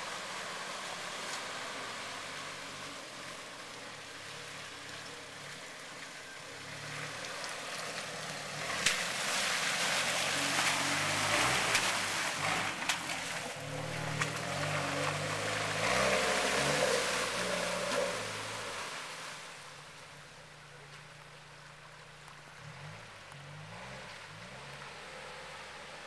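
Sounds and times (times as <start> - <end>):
car engine pulling at low speed: 0.0 - 26.0
muddy water splashing: 0.0 - 26.0.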